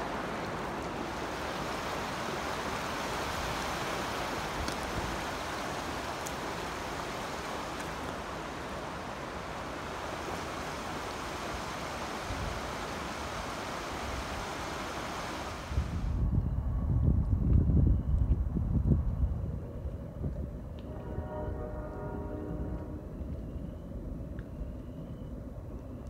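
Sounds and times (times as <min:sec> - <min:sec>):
river water rushing: 0:00.0 - 0:16.1
wind buffeting microphone: 0:15.6 - 0:24.7.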